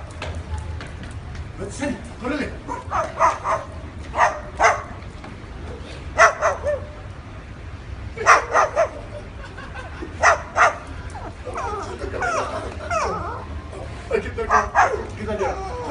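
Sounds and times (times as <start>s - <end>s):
cockatoo barking: 2.7s - 5.0s, 6.2s - 7.0s, 8.2s - 9.2s, 10.2s - 13.6s, 14.5s - 15.9s.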